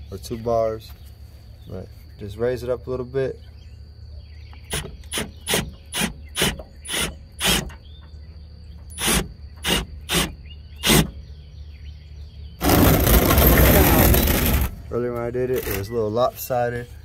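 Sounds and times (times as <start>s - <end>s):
hammer drill bursts: 4.7s - 7.8s, 8.9s - 11.2s, 12.6s - 14.8s.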